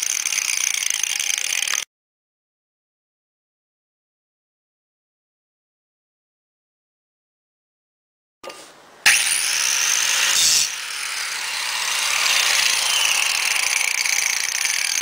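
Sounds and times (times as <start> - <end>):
angle grinder grinding metal: 0.0 - 1.9, 9.1 - 15.0.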